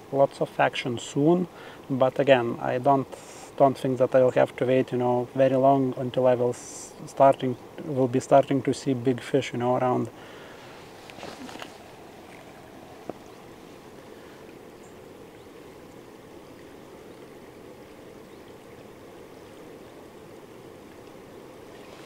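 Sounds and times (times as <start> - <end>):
river water rushing: 8.6 - 22.0.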